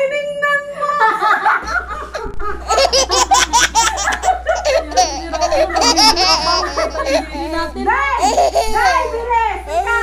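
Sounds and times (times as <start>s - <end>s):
women laughing hard: 1.0s - 9.2s.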